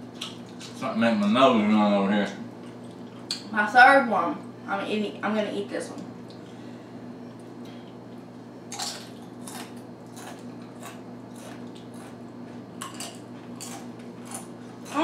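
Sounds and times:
steady low hum: 0.0s - 15.0s
chips crunching while chewed: 7.6s - 15.0s.

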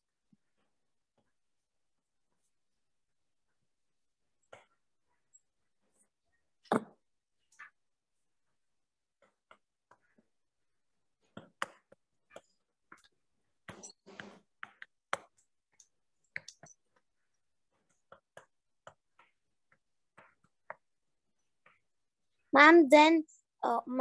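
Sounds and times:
pen clicks and taps on whiteboard: 9.2s - 10.3s, 11.2s - 21.9s.

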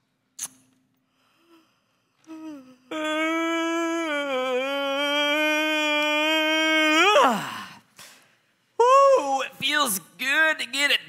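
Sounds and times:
person's long drawn-out ahh: 1.0s - 9.1s.

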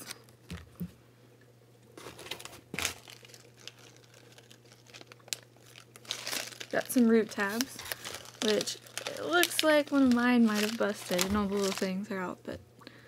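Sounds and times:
packaging crinkling: 2.0s - 12.0s.

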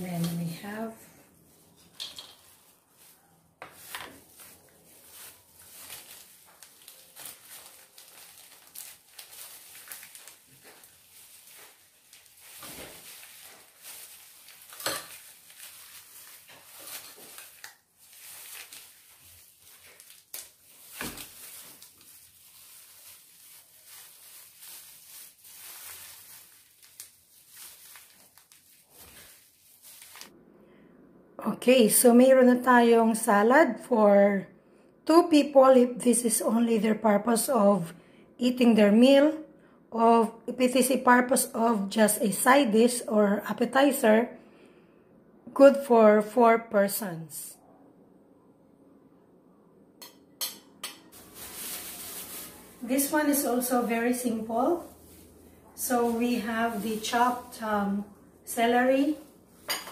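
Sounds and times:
plastic gloves crinkling: 0.0s - 30.3s, 51.0s - 59.9s
utensils set down on a board: 2.0s - 2.4s.

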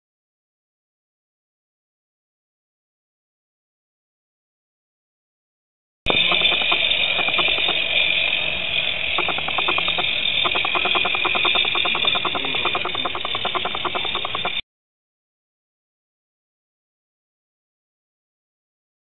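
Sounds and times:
steam locomotive chuffing: 6.1s - 14.6s
steam locomotive hissing: 6.1s - 14.6s.

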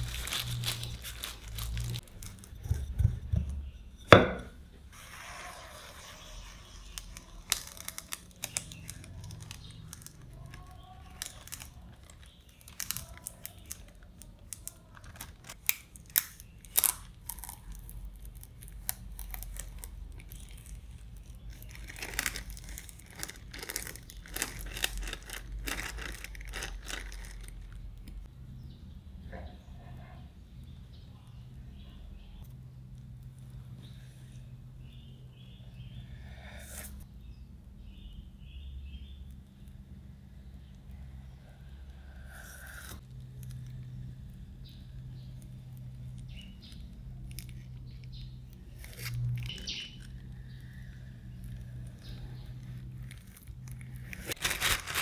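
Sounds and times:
plastic film crinkling and tearing: 0.0s - 2.6s, 5.1s - 28.3s, 51.4s - 55.0s.

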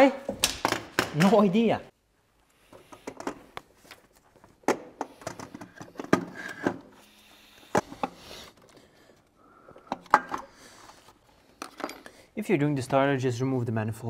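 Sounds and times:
tools clicking and knocking: 9.8s - 10.6s, 11.6s - 12.2s.

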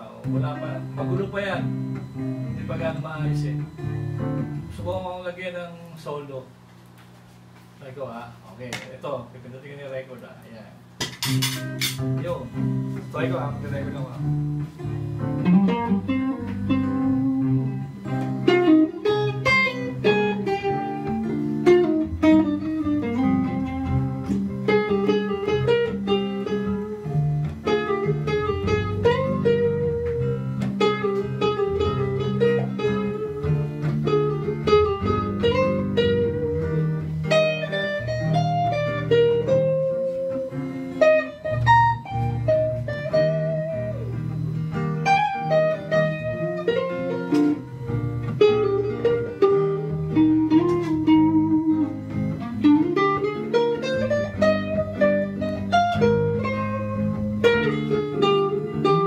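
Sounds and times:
electric guitar solo: 0.0s - 5.0s, 11.6s - 59.0s
two-chord backing track: 0.0s - 59.0s.

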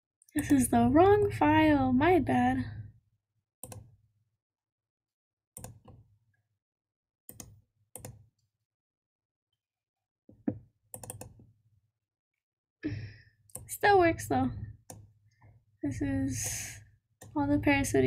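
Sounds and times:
computer mouse clicking: 3.6s - 3.8s, 5.6s - 6.0s, 7.3s - 8.2s, 11.0s - 11.4s.

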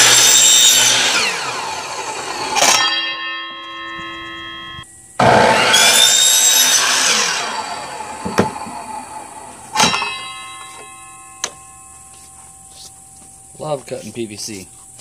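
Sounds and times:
miter saw cutting pipe: 0.0s - 10.9s.

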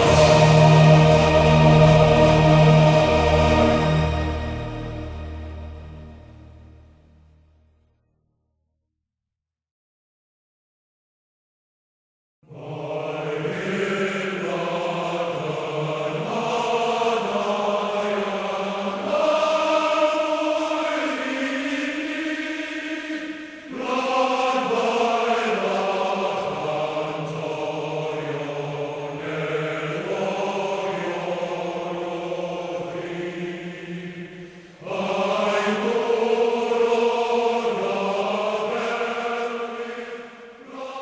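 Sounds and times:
choir singing long notes: 0.0s - 7.5s, 12.4s - 41.0s.

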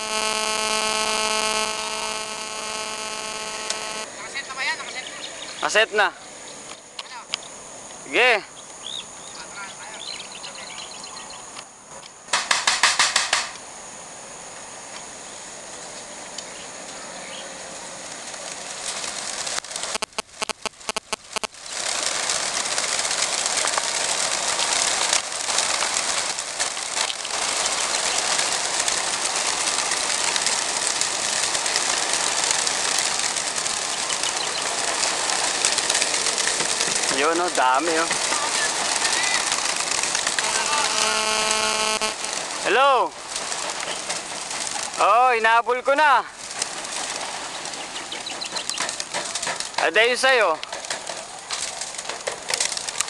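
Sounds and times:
pigeons flapping wings: 12.3s - 13.6s, 17.7s - 53.0s.

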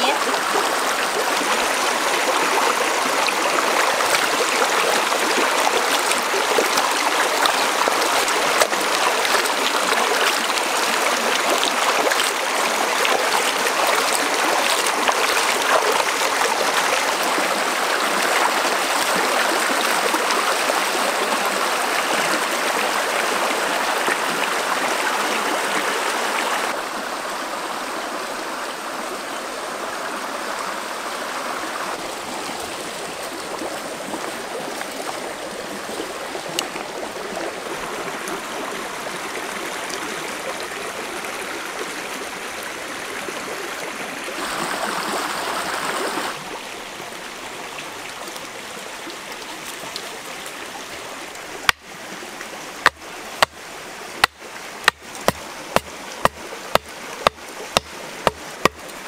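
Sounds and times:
splashing in water: 0.0s - 20.3s
stream rushing over rocks: 0.0s - 59.0s.

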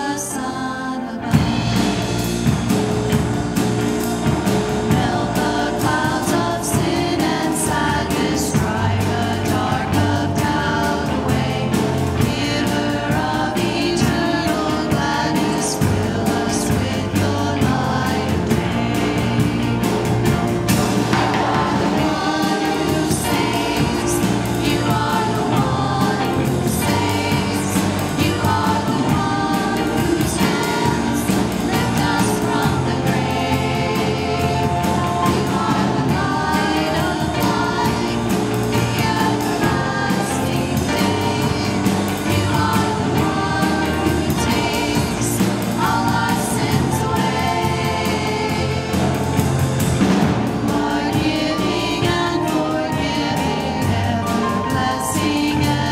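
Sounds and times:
band accompaniment: 0.0s - 55.9s
group singing worship song: 0.0s - 55.9s.

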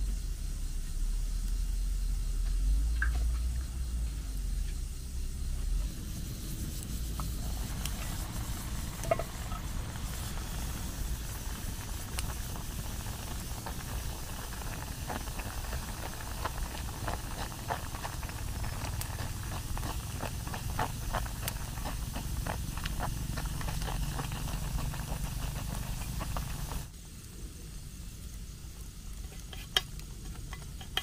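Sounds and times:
crackling ticks: 2.4s - 3.7s, 6.8s - 27.3s.

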